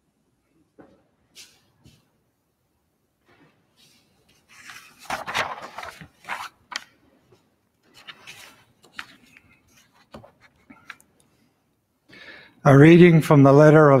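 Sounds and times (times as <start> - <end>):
paper rustling: 3.4 - 11.1.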